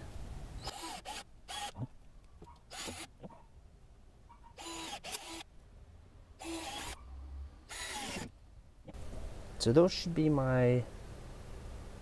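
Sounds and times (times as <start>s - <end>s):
cordless drill drilling plastic pipe: 0.6s - 1.9s, 2.7s - 3.1s, 4.6s - 5.5s, 6.4s - 7.0s, 7.7s - 8.3s.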